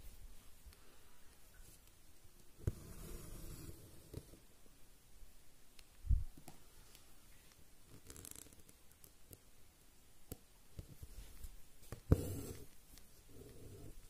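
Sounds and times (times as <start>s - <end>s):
thread rasping through fabric: 7.9s - 8.8s.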